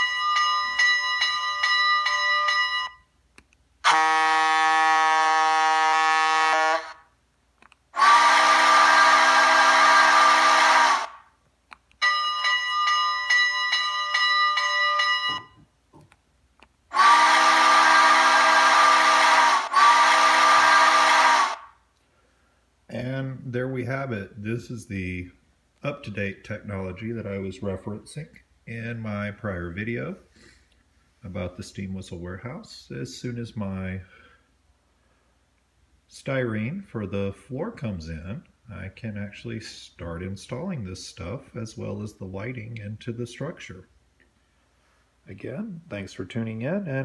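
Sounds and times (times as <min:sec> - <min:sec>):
steam locomotive whistle blasts: 0:03.9 - 0:07.0, 0:08.0 - 0:11.3, 0:16.9 - 0:21.7.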